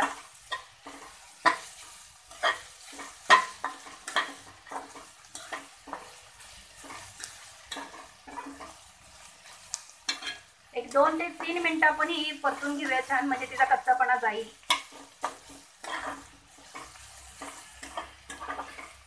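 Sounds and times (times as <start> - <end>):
spatula scraping metal pan: 0.0 - 8.8, 14.6 - 19.0
onions sizzling in oil: 0.0 - 19.0.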